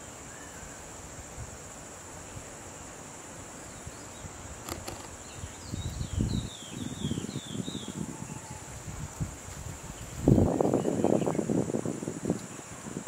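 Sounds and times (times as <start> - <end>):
insects buzzing: 0.0 - 13.0
bird chirping: 3.7 - 8.6
wind buffeting microphone: 4.2 - 13.0.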